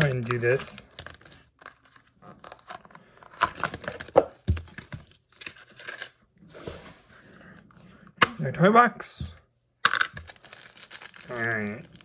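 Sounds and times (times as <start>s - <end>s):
packaging crinkling and tearing: 0.0s - 6.2s, 9.8s - 12.0s.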